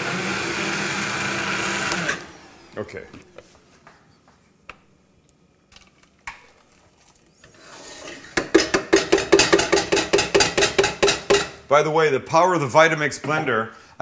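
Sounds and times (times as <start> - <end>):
utensil knocking and scraping: 7.4 - 11.5.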